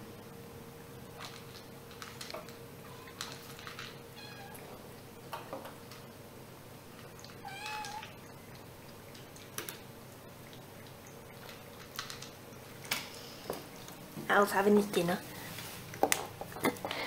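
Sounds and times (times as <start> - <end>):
kittens eating clicks: 1.2 - 4.0, 7.0 - 13.1
kittens meowing: 7.4 - 8.1.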